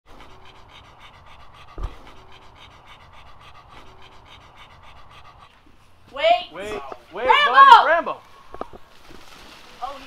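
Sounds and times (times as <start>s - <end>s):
dog panting: 0.1s - 8.2s
dull low thump: 1.7s - 2.1s.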